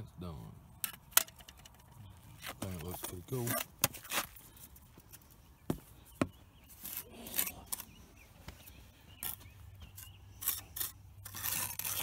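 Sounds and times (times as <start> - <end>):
trowel scraping mortar: 9.2 - 12.0.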